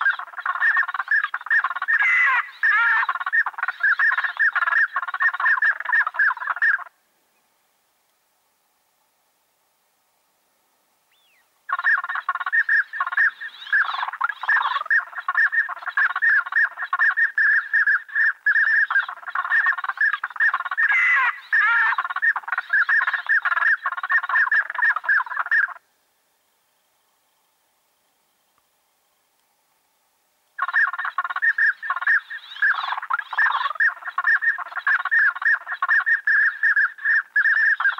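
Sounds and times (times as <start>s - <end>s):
ducks gobbling chatter: 0.0s - 7.0s, 11.7s - 25.9s, 30.6s - 37.9s.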